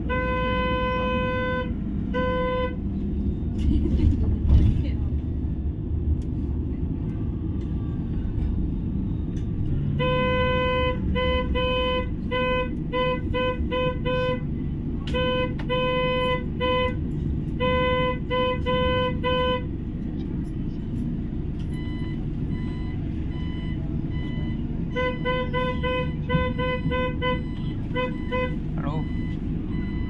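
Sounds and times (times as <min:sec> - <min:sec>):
vehicle horn tooting: 0:00.0 - 0:02.8, 0:10.0 - 0:14.4, 0:15.1 - 0:17.0, 0:17.6 - 0:19.7, 0:24.9 - 0:28.6
bus rumbling in motion: 0:00.0 - 0:30.0.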